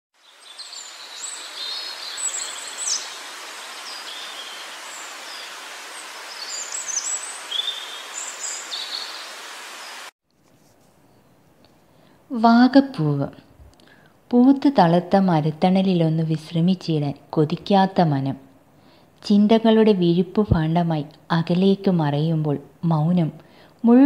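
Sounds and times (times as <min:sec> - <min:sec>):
small birds chirping: 0:00.2 - 0:10.1
steady hiss: 0:00.2 - 0:10.1.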